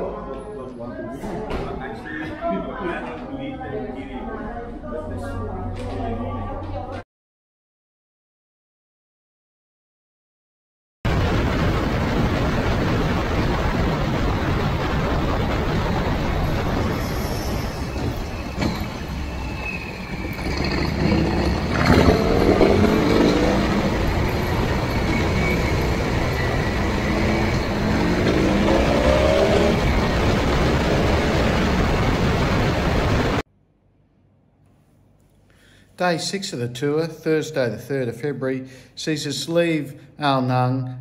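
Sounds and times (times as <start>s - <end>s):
motorcycle engine accelerating: 19.6s - 33.4s.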